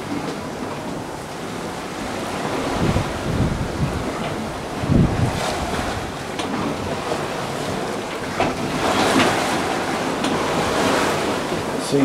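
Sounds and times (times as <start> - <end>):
sea rushing along hull: 0.0 - 12.0
wave breaking against boat: 0.0 - 12.0
wind on microphone: 0.0 - 12.0.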